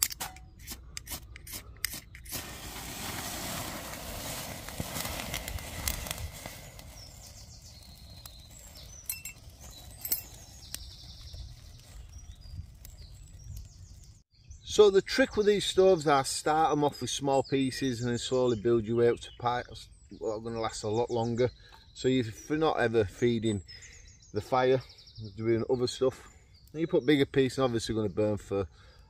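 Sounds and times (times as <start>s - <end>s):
twigs crackling: 1.5s - 14.2s
rushing flare of fire: 2.2s - 13.7s.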